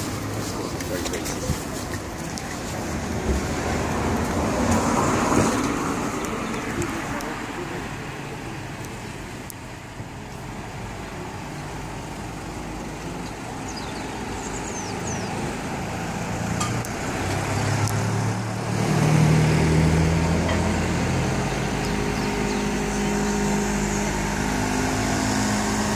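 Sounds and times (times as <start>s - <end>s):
street traffic hum: 0.0s - 25.9s
car driving past: 14.4s - 25.9s.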